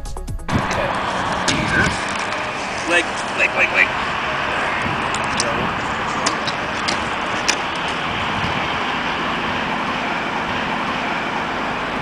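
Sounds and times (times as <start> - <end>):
steady rushing noise: 0.5 - 12.0.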